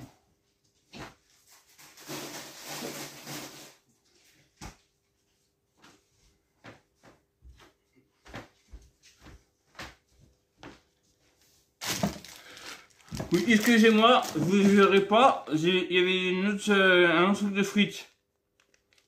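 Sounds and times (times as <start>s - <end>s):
footsteps on floor: 5.7s - 12.3s.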